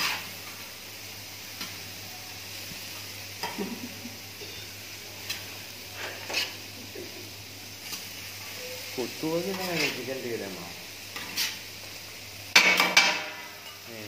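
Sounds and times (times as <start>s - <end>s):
vegetables sizzling on a griddle: 0.0s - 14.0s
metal spatula scraping and clinking: 6.0s - 6.6s, 9.5s - 10.0s, 11.2s - 11.6s.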